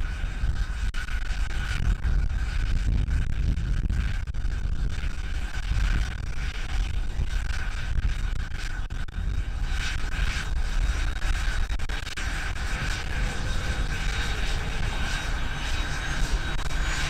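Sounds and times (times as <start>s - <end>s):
wind buffeting microphone: 0.0s - 17.0s
jet engines idling: 11.9s - 17.0s.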